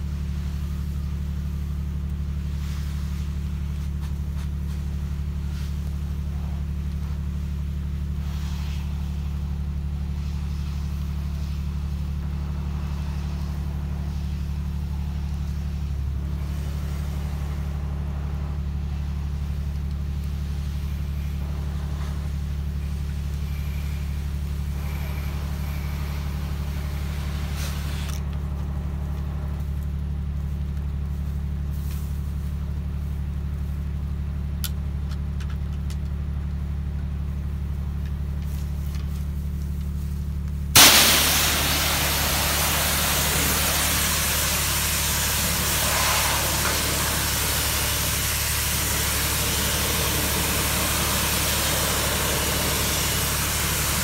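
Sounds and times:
pressure washer engine running: 0:00.0 - 0:32.8, 0:38.5 - 0:54.0
water spray hissing: 0:19.4 - 0:28.2, 0:40.8 - 0:54.0
spray wand trigger burst: 0:40.8 - 0:54.0.

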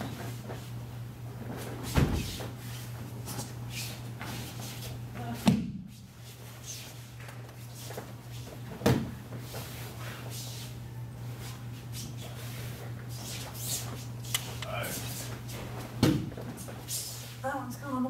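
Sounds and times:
steady low hum: 0:00.0 - 0:18.0
body thudding onto padded mat: 0:01.9 - 0:02.4.

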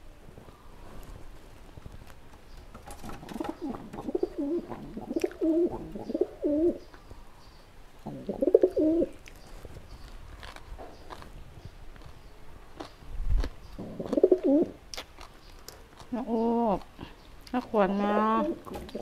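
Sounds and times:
dove cooing: 0:03.0 - 0:06.9, 0:08.0 - 0:09.2, 0:13.8 - 0:14.8.

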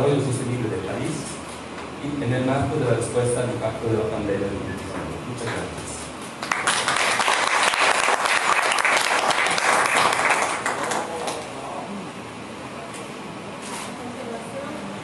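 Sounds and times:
audience applauding: 0:06.4 - 0:11.6.

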